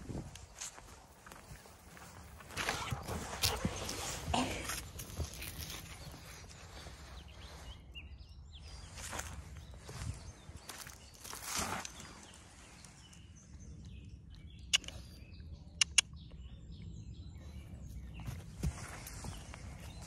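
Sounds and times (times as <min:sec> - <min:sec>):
sharp clicks: 0:14.7 - 0:15.1, 0:15.8 - 0:16.2.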